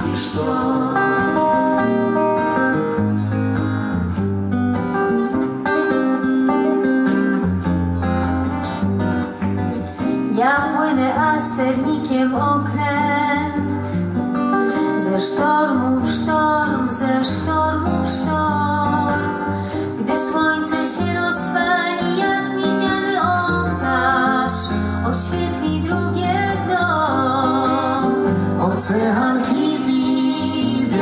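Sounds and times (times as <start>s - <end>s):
woman singing: 0.0s - 2.0s, 10.2s - 14.0s, 14.8s - 31.0s
acoustic guitars strummed: 0.0s - 31.0s.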